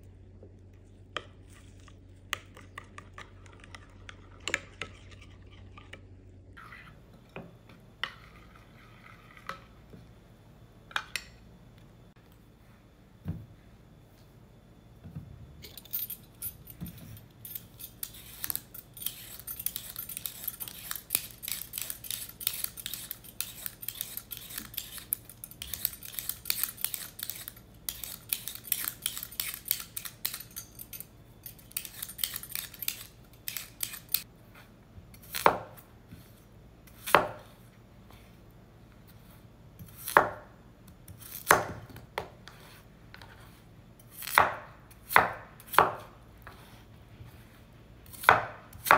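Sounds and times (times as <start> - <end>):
peeler scraping potatoes: 15.7 - 34.3
knife chopping on wooden board: 35.3 - 35.8, 37.0 - 37.5, 44.2 - 46.7, 48.1 - 48.9.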